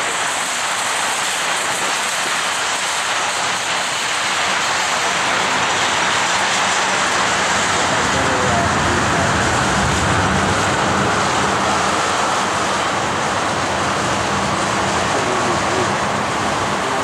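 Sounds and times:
train wheels on rails: 0.0s - 8.6s.

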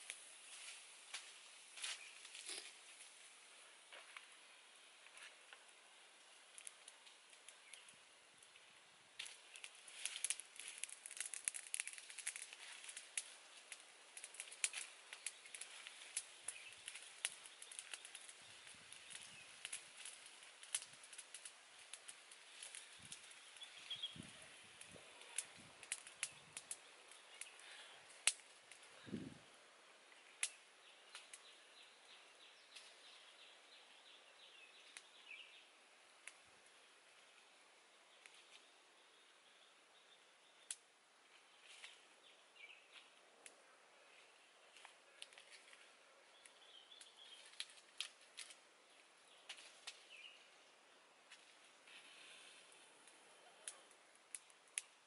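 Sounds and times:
wood fire crackling: 0.0s - 55.0s
faint sharp clicks and snaps: 6.5s - 8.6s, 9.2s - 23.7s, 24.8s - 29.0s, 30.1s - 31.6s, 34.8s - 35.2s, 36.2s - 36.5s, 40.6s - 40.9s, 42.9s - 43.6s, 44.7s - 48.6s, 49.4s - 50.2s, 51.3s - 55.0s
faint bird chirps: 22.5s - 25.6s.

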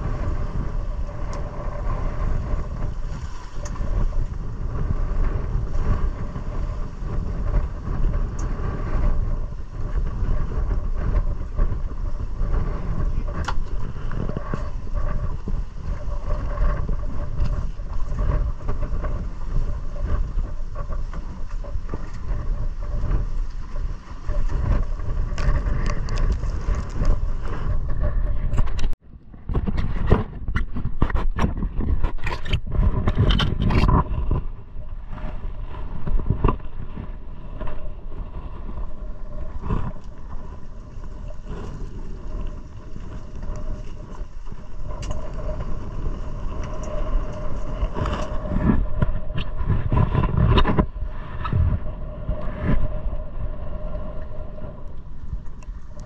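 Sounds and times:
water rushing along hull: 0.0s - 56.0s
wind buffeting microphone: 0.0s - 56.0s.

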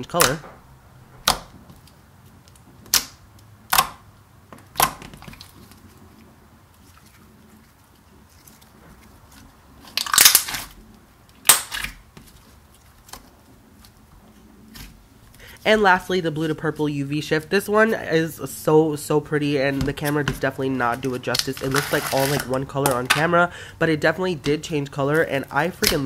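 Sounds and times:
slime popping and crackling: 7.8s - 14.0s, 24.4s - 26.0s.

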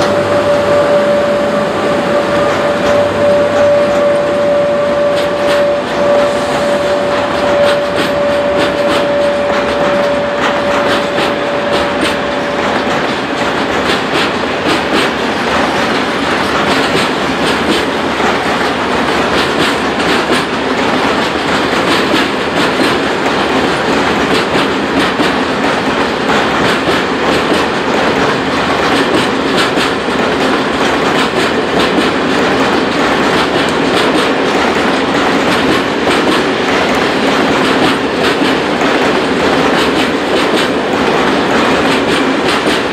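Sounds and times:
high whine: 0.0s - 13.1s
train wheels clacking on rails: 0.0s - 42.9s.

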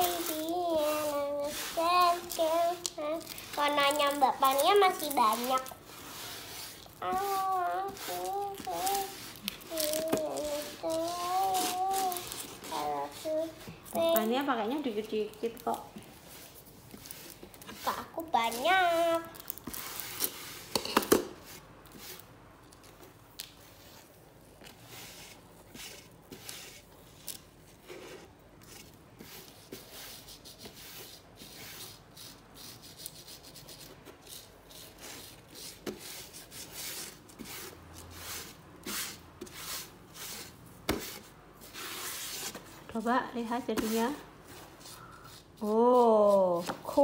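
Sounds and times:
fingers rubbing sand on card: 0.0s - 13.6s.

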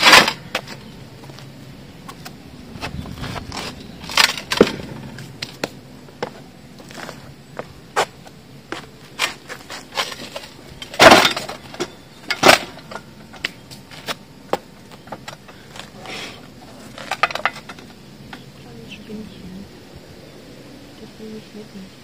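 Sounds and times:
grinding scrape: 9.1s - 13.0s.

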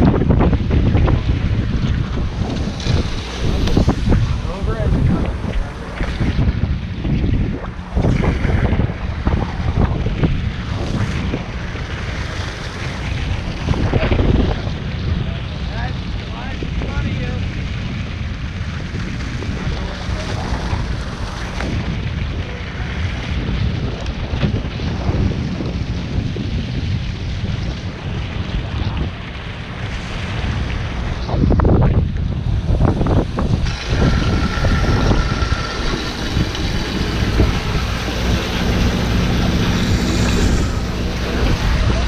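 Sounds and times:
water churning along boat hull: 0.0s - 42.0s
wind buffeting microphone: 0.0s - 42.0s.

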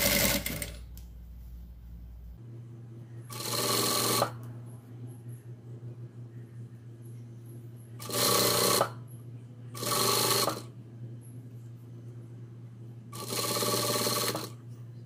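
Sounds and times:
sewing machine stitching: 0.0s - 0.8s, 3.3s - 4.4s, 8.0s - 9.0s, 9.8s - 10.7s, 13.2s - 14.6s
steady low hum: 0.0s - 15.0s.

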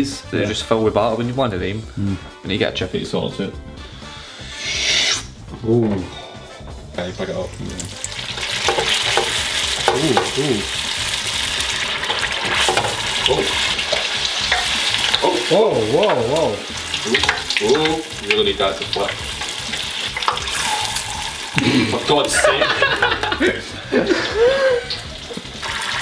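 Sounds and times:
oil bubbling and crackling in fryer: 7.7s - 22.4s, 24.9s - 26.0s.

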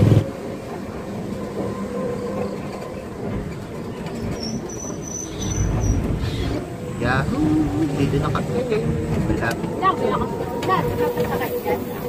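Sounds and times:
rattling and road rumble: 2.4s - 12.0s.

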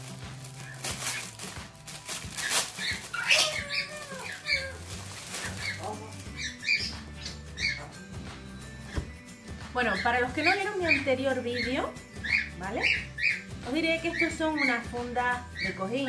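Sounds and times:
plastic bag crinkling: 0.0s - 6.9s
faint background music: 0.0s - 16.0s
high bird-like chirps: 5.4s - 8.1s, 9.9s - 14.9s.

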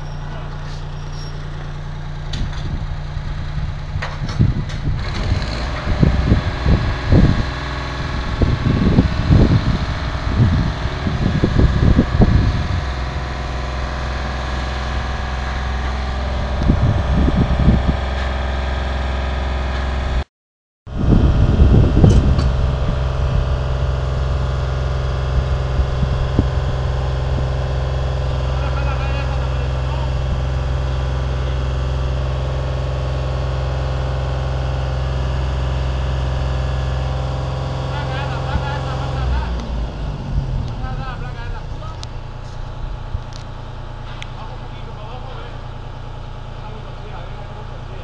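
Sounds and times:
heavy machinery engine running: 0.0s - 20.2s, 20.9s - 48.0s
wind buffeting microphone: 2.3s - 13.6s, 14.9s - 18.2s, 20.9s - 28.5s.

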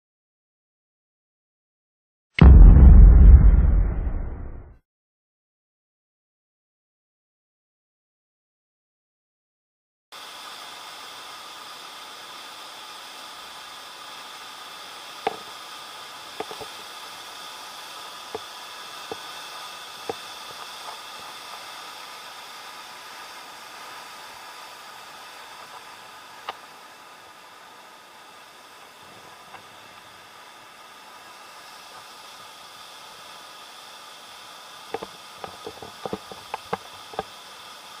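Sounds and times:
waterfall and rapids rushing: 10.2s - 19.2s, 20.0s - 38.0s.

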